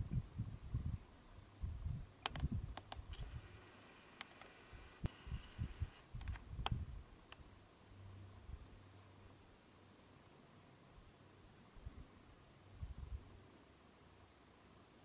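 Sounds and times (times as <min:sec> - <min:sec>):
faint low hum: 0:00.0 - 0:15.0
camera handling clicks: 0:06.2 - 0:06.8.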